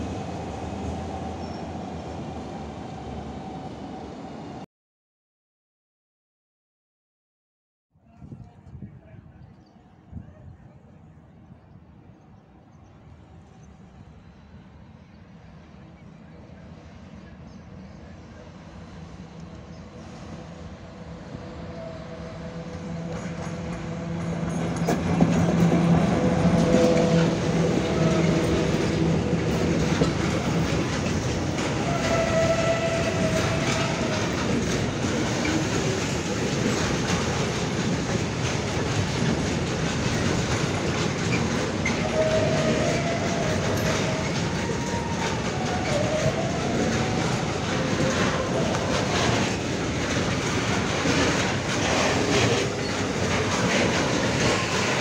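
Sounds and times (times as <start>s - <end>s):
electric locomotive hum: 13.0s - 55.0s
wheel-on-rail noise: 22.6s - 55.0s
wheels clicking over rail joints: 22.8s - 55.0s.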